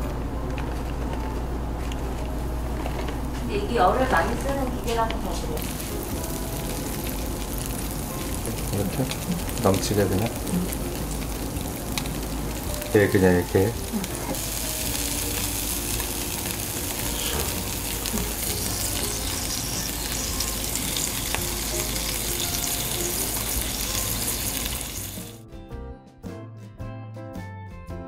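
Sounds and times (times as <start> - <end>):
music: 0.0 - 28.0
food sizzling in waffle maker: 5.6 - 25.4.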